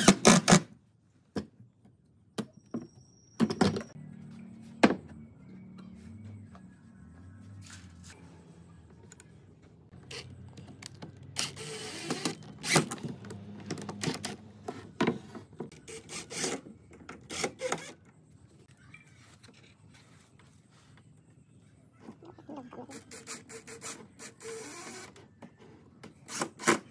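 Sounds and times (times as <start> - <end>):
cordless drill-driver running: 11.4 - 12.8.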